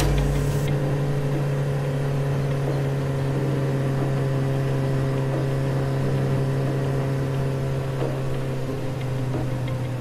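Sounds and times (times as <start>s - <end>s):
scooter engine droning: 0.0s - 0.8s.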